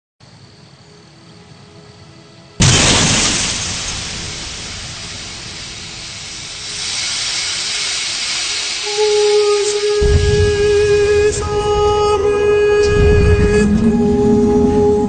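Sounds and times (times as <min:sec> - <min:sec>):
faint crickets chirping: 0:00.2 - 0:15.0
loud rushing blast: 0:02.6 - 0:14.2.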